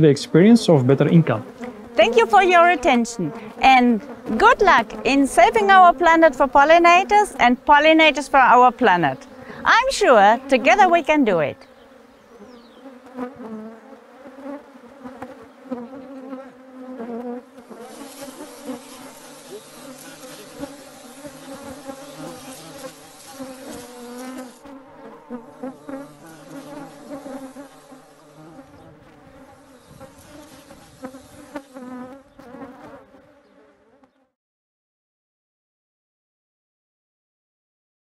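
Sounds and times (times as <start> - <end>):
bees buzzing: 0.0 - 34.2
hiss: 17.8 - 24.6, 29.6 - 31.9.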